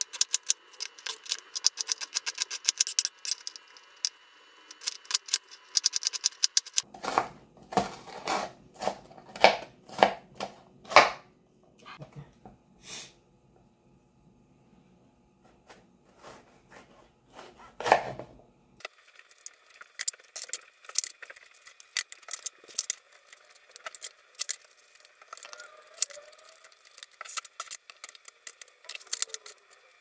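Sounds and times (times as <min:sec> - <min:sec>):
knife cutting crisp peppers: 0:00.0 - 0:03.6, 0:16.1 - 0:18.2
spoon scraping out seeds: 0:00.0 - 0:06.8, 0:19.0 - 0:30.0.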